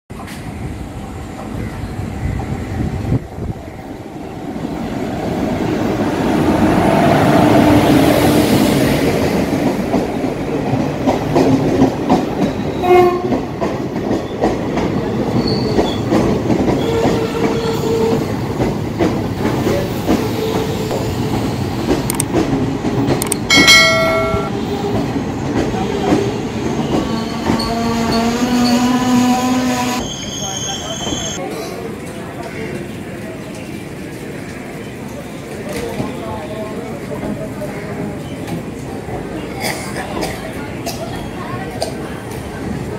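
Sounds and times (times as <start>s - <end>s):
train wheels clattering on rails: 5.9s - 29.0s
train horn blast: 12.8s - 13.4s.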